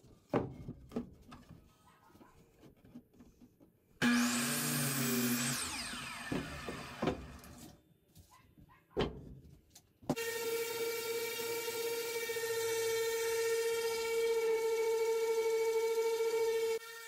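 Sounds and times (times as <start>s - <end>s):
electric sander running: 4.0s - 7.6s, 10.2s - 17.0s
saw blade winding down whine: 4.0s - 7.6s, 10.2s - 17.0s
miter saw cutting wood: 4.0s - 7.7s, 10.1s - 17.0s.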